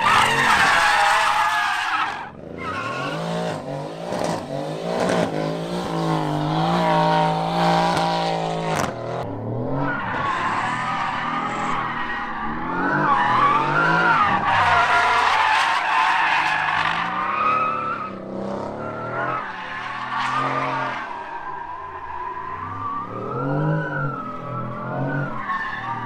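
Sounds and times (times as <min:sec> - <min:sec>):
tyres squealing: 0:00.0 - 0:03.2
car engine revving: 0:00.0 - 0:26.0.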